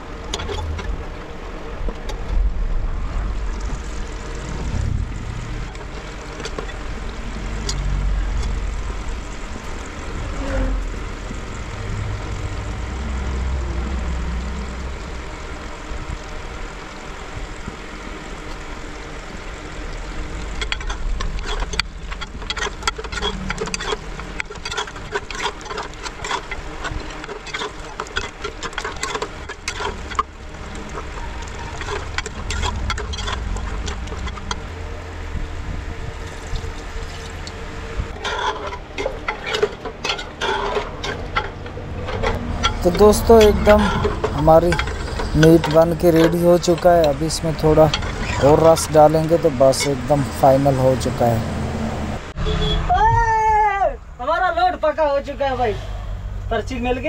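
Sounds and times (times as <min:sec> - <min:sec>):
low rumble: 0:00.0 - 0:25.2, 0:29.5 - 0:39.4.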